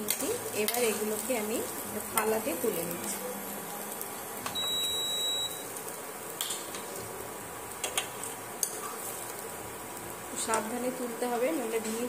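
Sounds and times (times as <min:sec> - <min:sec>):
food frying in oil: 0:00.0 - 0:12.0
electronic beep: 0:04.5 - 0:05.7.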